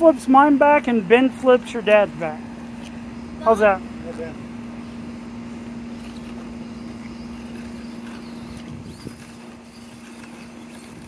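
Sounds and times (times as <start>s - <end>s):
toy car electric motor whine: 5.9s - 11.0s.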